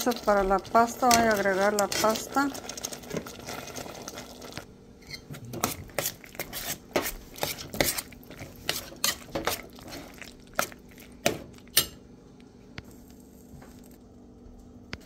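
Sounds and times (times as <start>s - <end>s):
utensil stirring pasta in sauce: 0.0s - 4.7s, 5.5s - 11.9s.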